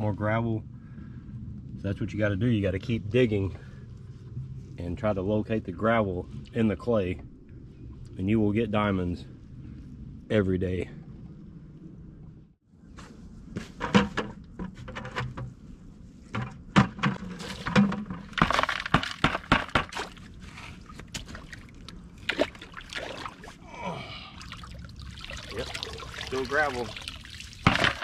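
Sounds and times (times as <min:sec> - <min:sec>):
water splashing: 0:17.4 - 0:28.0.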